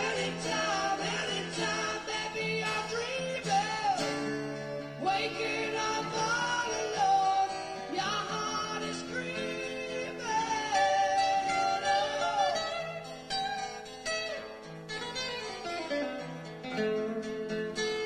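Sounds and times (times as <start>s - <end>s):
man singing: 0.0s - 13.1s
acoustic guitar: 0.0s - 18.0s.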